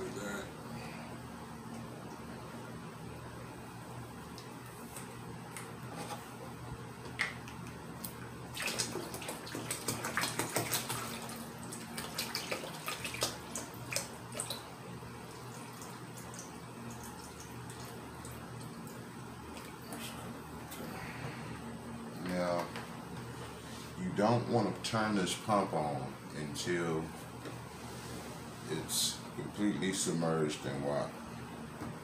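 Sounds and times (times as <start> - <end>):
water pouring and splashing: 8.5 - 14.7.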